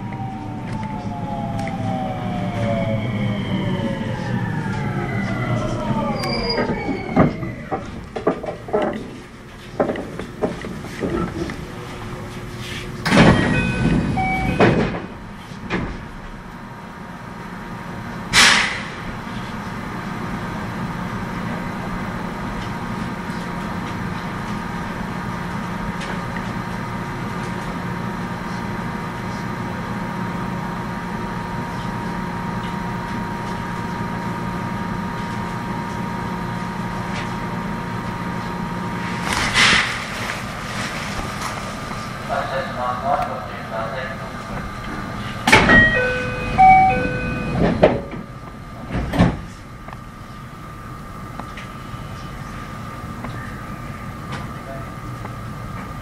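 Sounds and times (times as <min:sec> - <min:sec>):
steady train hum: 0:00.0 - 0:56.0
train door and brake air noise: 0:12.6 - 0:16.3, 0:18.3 - 0:19.6, 0:39.0 - 0:42.0, 0:44.6 - 0:49.7.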